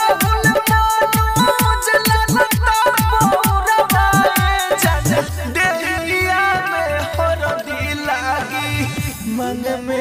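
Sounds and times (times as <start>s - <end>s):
pulsing bass line: 0.0s - 5.6s
electronic dance music: 0.0s - 10.0s
deep electronic kick drums: 0.2s - 5.4s.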